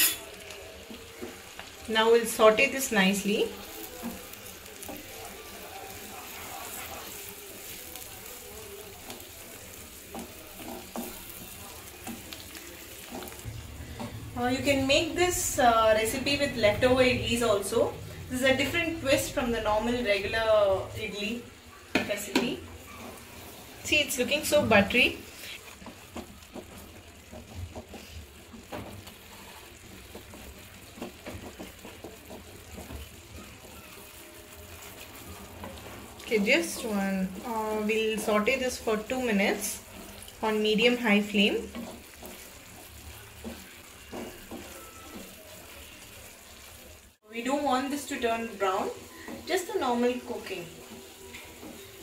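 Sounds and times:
vegetables sizzling in butter: 0.0s - 52.0s
wooden spatula scraping a pan: 3.4s - 8.1s, 9.0s - 14.8s, 22.1s - 52.0s
wooden spatula knocking pan: 21.9s - 23.2s, 30.0s - 33.8s, 40.8s - 45.7s.

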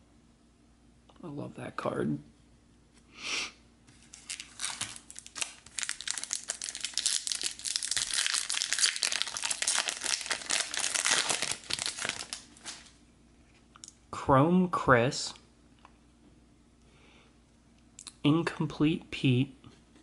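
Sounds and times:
foil wrapper tearing and crinkling: 4.0s - 13.0s.

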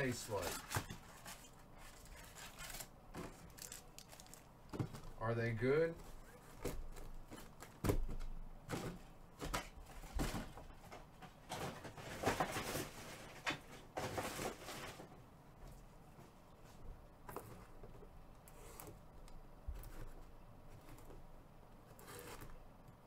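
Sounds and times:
packs rustling: 0.0s - 5.2s.

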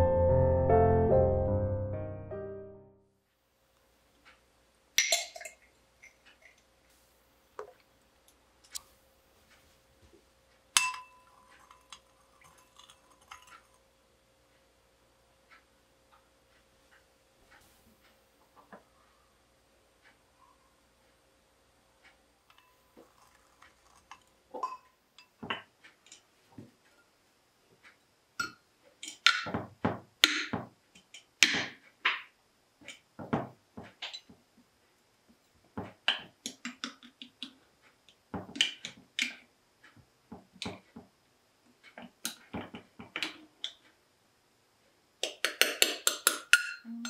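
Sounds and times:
spoon clinking against glass bowls: 10.8s - 13.6s, 45.6s - 46.9s.

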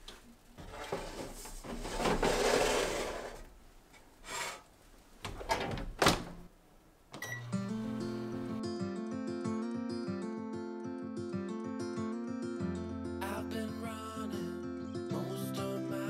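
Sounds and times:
baking sheet scraping into oven: 0.6s - 3.5s
short control panel beep: 7.2s - 7.6s.

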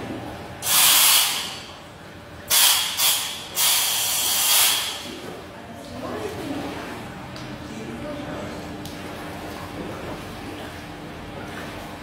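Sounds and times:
compressed air hissing: 0.6s - 1.6s, 2.5s - 5.0s.

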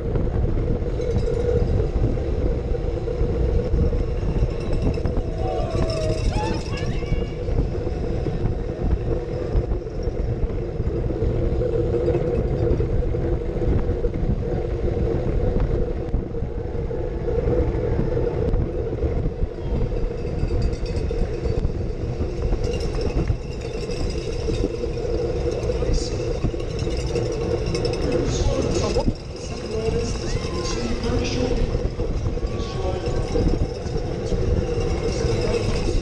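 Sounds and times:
wind buffeting microphone: 0.0s - 36.0s.

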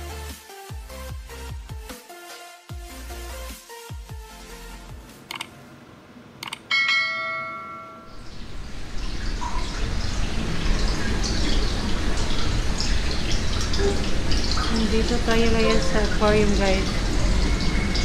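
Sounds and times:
short clicks: 5.3s - 5.5s
bright bell-like ding: 6.7s - 8.1s.

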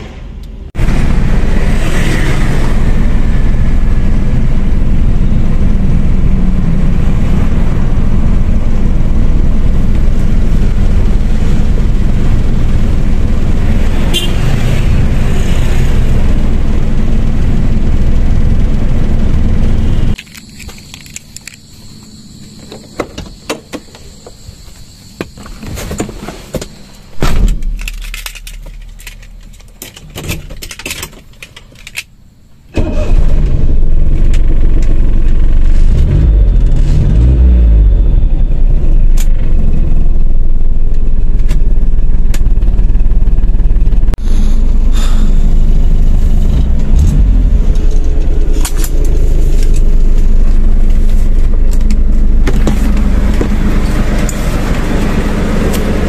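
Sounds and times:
car engine running: 0.0s - 30.8s, 32.6s - 56.0s
heavy thump: 27.2s - 27.8s.

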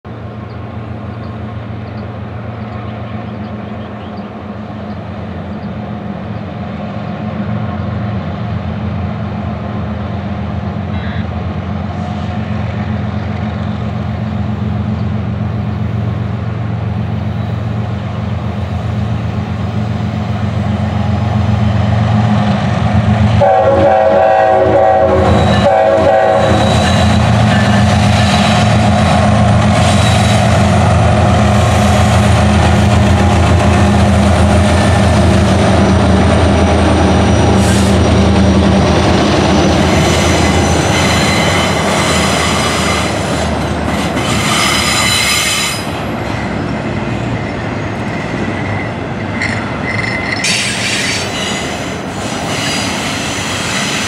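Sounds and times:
diesel locomotive engines droning: 0.0s - 54.0s
train horn blasts: 23.3s - 27.8s.

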